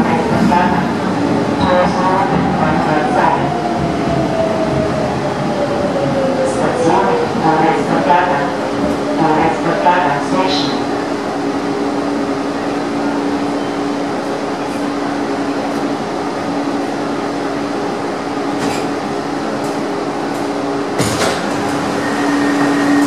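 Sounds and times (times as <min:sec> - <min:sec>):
metro train rumble: 0:00.0 - 0:23.0.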